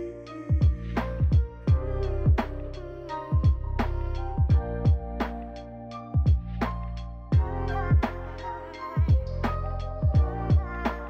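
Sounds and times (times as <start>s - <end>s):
deep kick drums: 0.5s - 2.6s, 3.3s - 3.8s, 4.4s - 5.3s, 6.2s - 6.6s, 7.3s - 8.2s, 9.0s - 10.8s.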